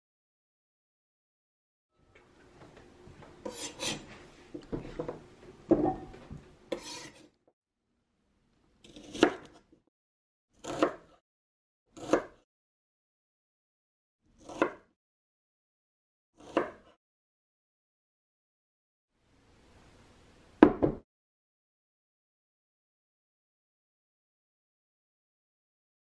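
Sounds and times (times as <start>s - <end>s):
knife cutting onion on board: 3.4s - 4.1s, 6.7s - 7.3s, 8.8s - 9.8s, 10.6s - 11.2s, 11.9s - 12.4s, 14.3s - 14.9s, 16.4s - 17.0s.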